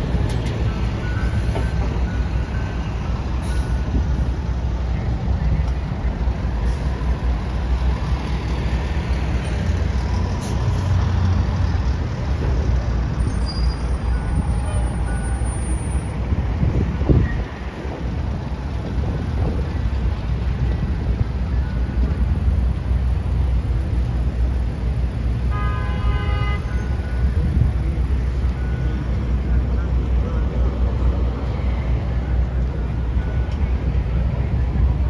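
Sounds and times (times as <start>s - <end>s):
city street traffic: 0.0s - 35.0s.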